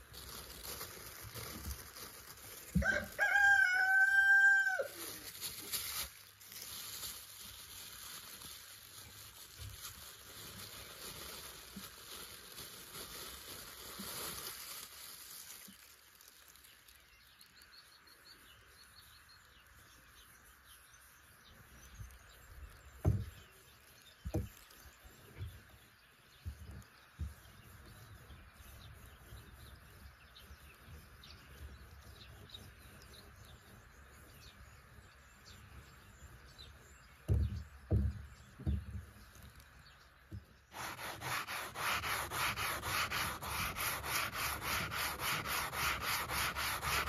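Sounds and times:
rooster crowing: 2.8s - 5.0s.

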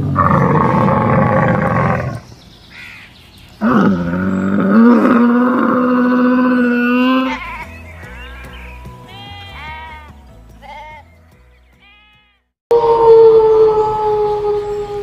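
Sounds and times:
camel calling: 3.6s - 11.1s.

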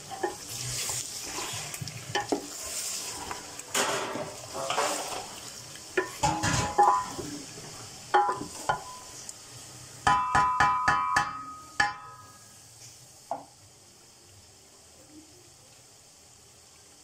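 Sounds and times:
wooden spoon knocking on metal pot: 10.0s - 12.2s.

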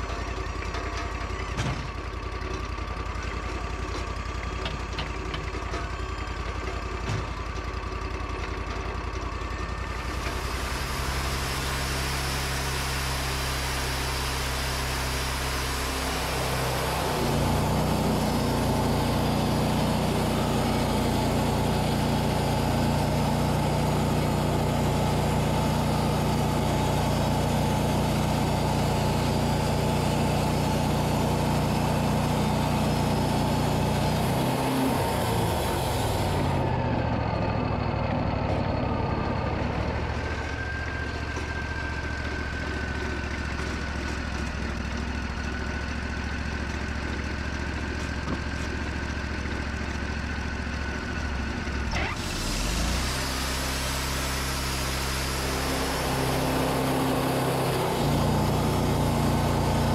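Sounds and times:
sawmill engine running: 0.0s - 59.9s
band saw blade cutting log: 14.9s - 36.7s, 52.0s - 59.9s.

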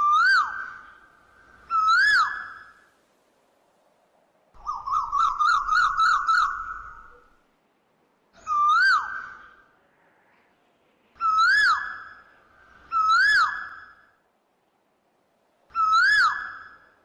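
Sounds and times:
bird-like whistled calls: 0.0s - 2.9s, 4.6s - 7.3s, 8.4s - 9.6s, 11.2s - 14.1s, 15.7s - 17.0s.

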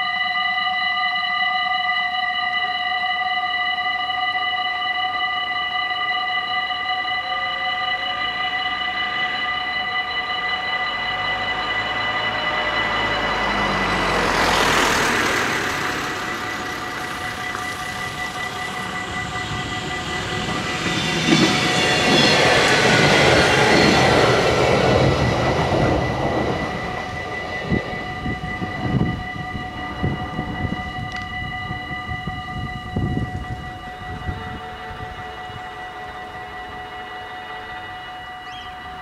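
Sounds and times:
level crossing warning bells: 0.0s - 39.0s
train wheels on rails: 10.9s - 31.7s.

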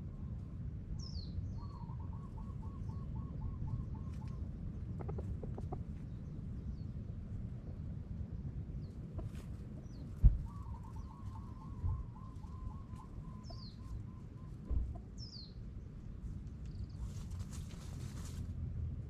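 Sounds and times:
birds chirping: 1.0s - 7.0s, 8.7s - 17.0s.

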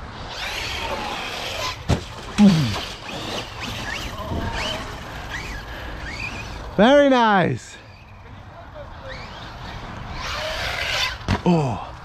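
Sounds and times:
rc truck motor whines: 0.0s - 6.8s, 8.8s - 11.3s.

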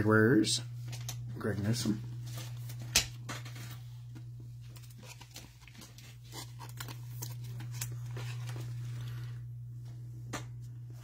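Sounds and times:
steady low hum: 0.0s - 11.0s
plastic sleeve rustling: 2.1s - 9.6s.

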